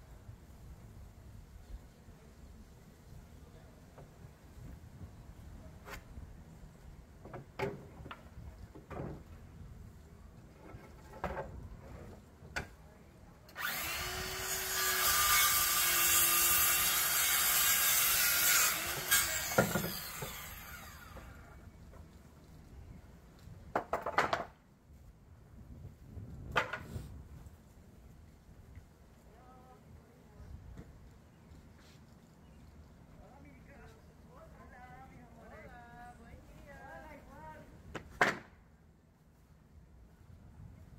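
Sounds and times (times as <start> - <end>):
circular saw cutting wood: 13.5 - 21.6
knocks of board being handled: 23.7 - 24.6.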